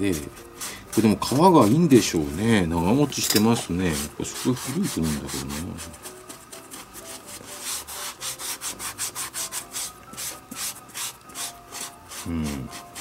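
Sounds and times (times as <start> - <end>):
fingers rubbing leather: 0.0 - 13.0.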